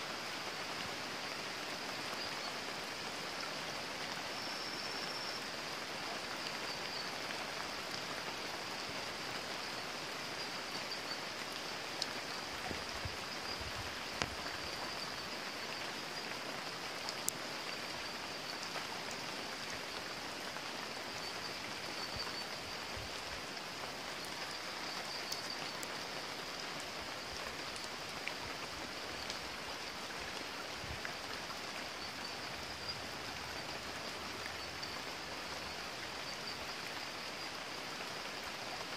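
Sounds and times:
steady rain falling: 0.0 - 38.9
stream running over stones: 0.0 - 38.9
faint ticks: 11.5 - 15.0.

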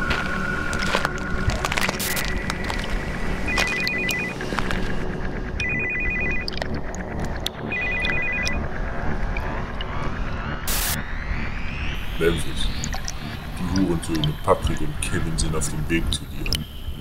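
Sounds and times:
phone ringtone trilling: 3.5 - 4.6, 5.6 - 6.7, 7.6 - 8.7.

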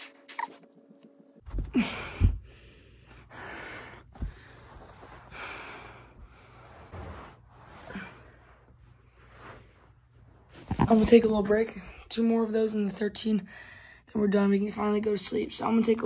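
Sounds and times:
body thumping onto carpet: 1.4 - 2.4
person breathing heavily: 1.6 - 10.0.

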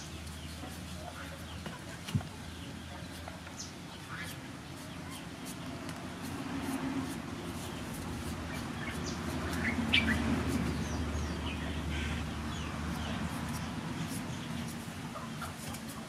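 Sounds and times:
birds chirping: 0.0 - 16.0
knife scraping papaya skin: 4.3 - 11.0, 12.8 - 16.0.

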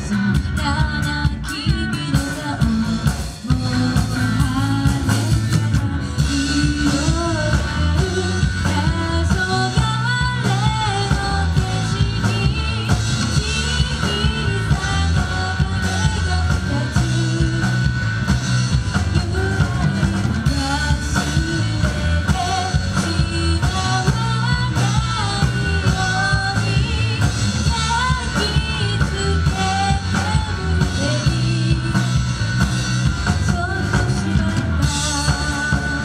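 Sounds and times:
woman singing: 0.0 - 18.0, 18.9 - 36.0
drum kit: 0.0 - 36.0
electric bass: 0.0 - 36.0
electric guitar: 0.0 - 36.0.

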